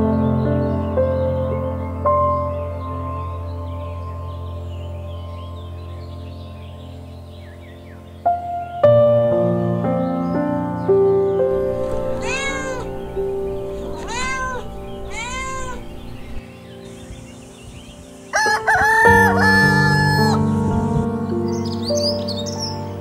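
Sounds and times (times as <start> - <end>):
soft background music: 0.0 - 23.0
cat meows: 11.6 - 16.4
rooster crowing: 11.6 - 16.4, 18.4 - 20.4.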